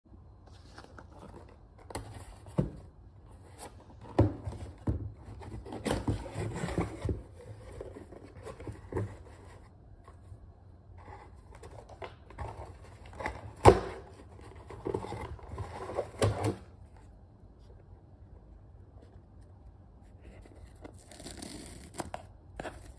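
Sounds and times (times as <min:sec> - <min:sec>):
cardboard box being opened: 0:03.4 - 0:09.7, 0:11.0 - 0:16.6.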